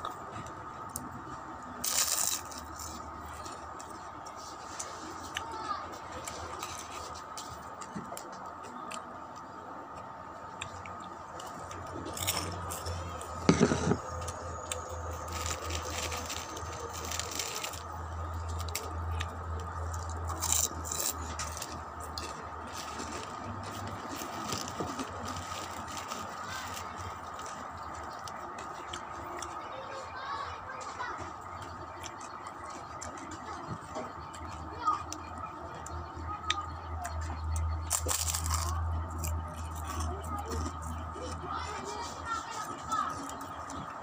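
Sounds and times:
pork rinds crackling and crunching: 0:00.4 - 0:29.7, 0:31.4 - 0:44.0
plastic bag crinkling: 0:13.5 - 0:18.9, 0:22.6 - 0:27.6.

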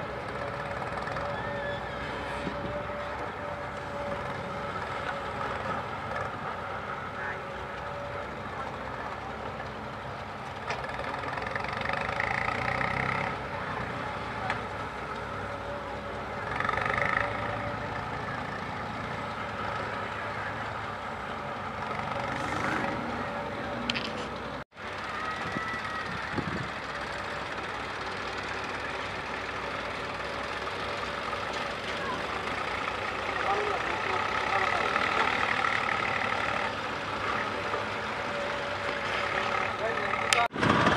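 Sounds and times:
diesel engines running: 0:00.0 - 0:40.9
trucks idling: 0:00.0 - 0:40.9
excavator loading sand: 0:26.8 - 0:40.9.

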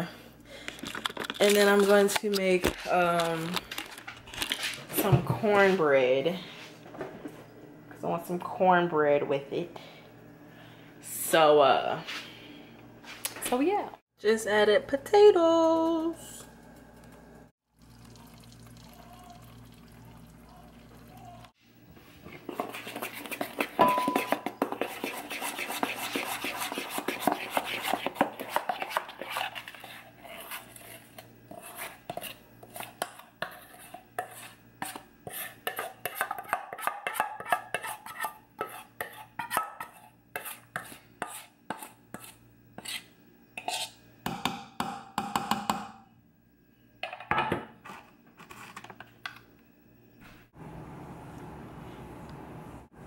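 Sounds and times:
spoon scraping glass bowl: 0:22.3 - 0:44.0
spoon clinking on metal pan: 0:23.8 - 0:24.5.

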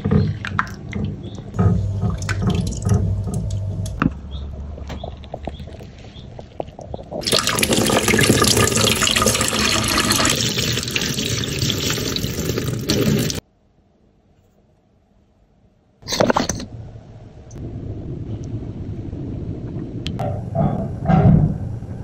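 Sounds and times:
water dripping and splashing: 0:00.2 - 0:04.0, 0:05.0 - 0:13.4
tap running into metal sink: 0:02.0 - 0:03.6.

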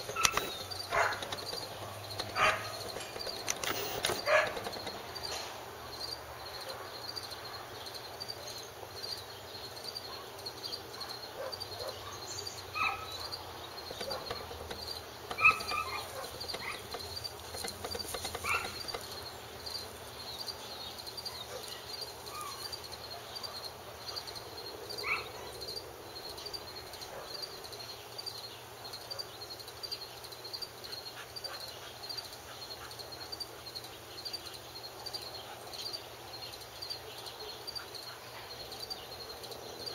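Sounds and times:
short high squeaks: 0:00.0 - 0:05.1
cricket chirping: 0:00.0 - 0:39.9.

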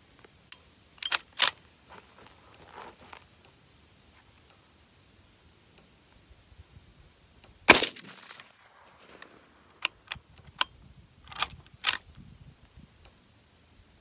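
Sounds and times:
rifle lever action clicks: 0:01.0 - 0:01.6, 0:11.3 - 0:12.1
rifle shot with ringing echo: 0:07.7 - 0:09.6.

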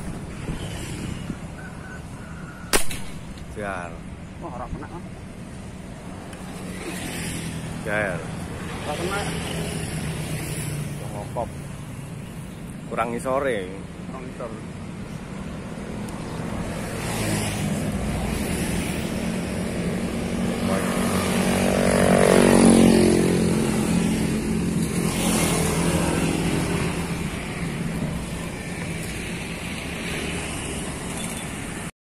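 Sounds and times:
steady traffic noise: 0:00.0 - 0:31.9
vehicle driving past: 0:16.8 - 0:30.8.

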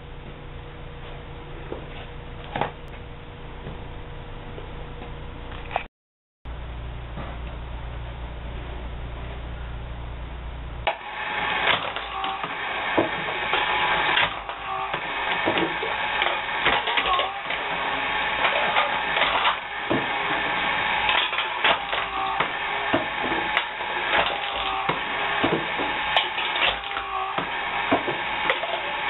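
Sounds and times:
can crusher low hum: 0:10.8 - 0:29.0
metal clanks and can crunches: 0:21.1 - 0:22.2.

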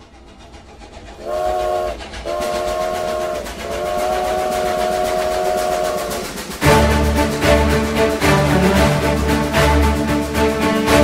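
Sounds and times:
moving train noise: 0:00.0 - 0:11.0
steam locomotive whistle: 0:01.2 - 0:07.0.

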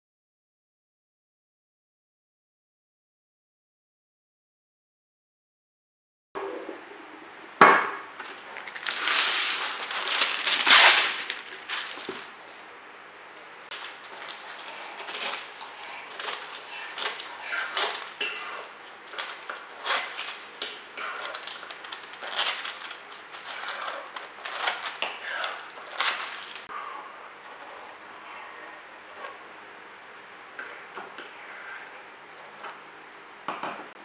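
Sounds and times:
paper crinkling: 0:08.2 - 0:12.6, 0:13.7 - 0:26.7
scissors cutting paper: 0:13.7 - 0:26.7.

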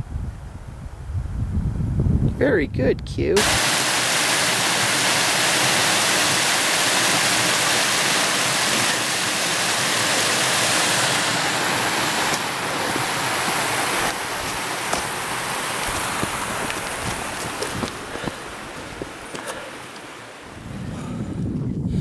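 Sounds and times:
creek cascading over rocks: 0:03.4 - 0:20.6.

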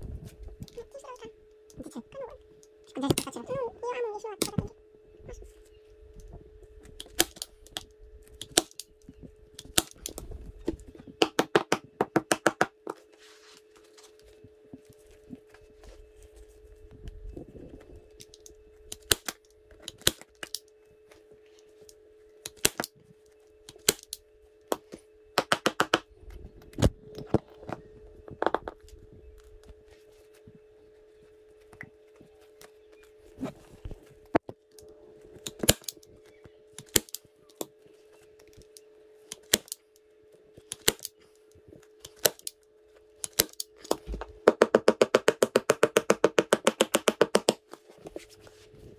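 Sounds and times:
steady hum: 0:00.0 - 0:48.9.

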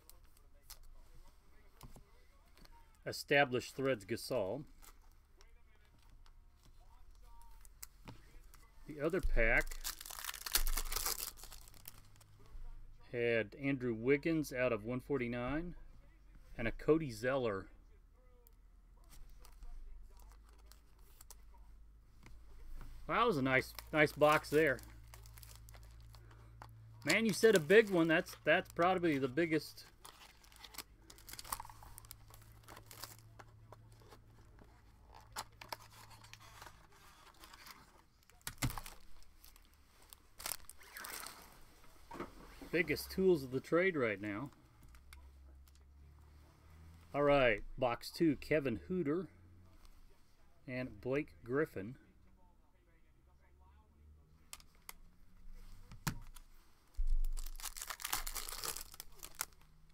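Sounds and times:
plastic packaging crinkling: 0:09.2 - 0:12.3, 0:23.2 - 0:41.7, 0:57.0 - 0:59.9.

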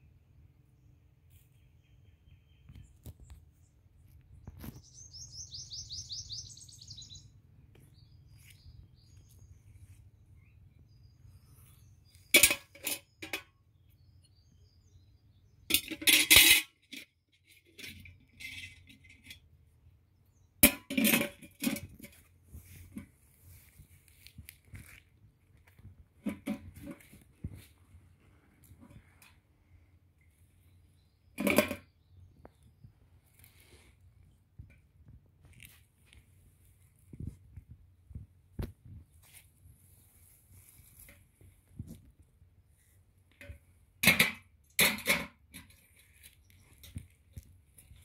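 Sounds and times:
bird chirping: 0:00.8 - 0:12.4, 0:13.0 - 0:15.7
steel can knocking and rattling: 0:12.3 - 0:13.5, 0:15.7 - 0:19.4, 0:20.6 - 0:22.2, 0:26.2 - 0:27.2, 0:31.4 - 0:31.9, 0:43.3 - 0:46.1.

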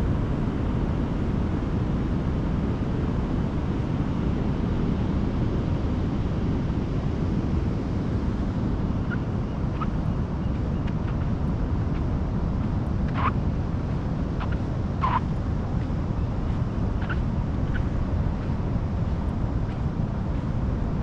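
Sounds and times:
wind on microphone: 0:00.0 - 0:21.0.

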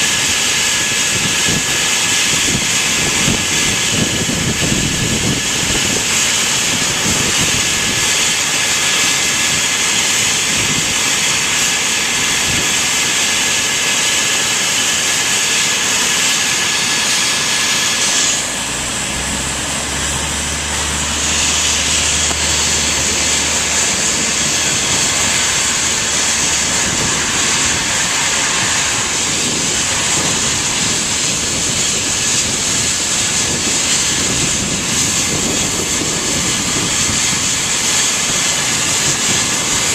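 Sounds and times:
helicopter turbine whine: 0:00.0 - 0:39.9
low hum: 0:17.4 - 0:36.6.

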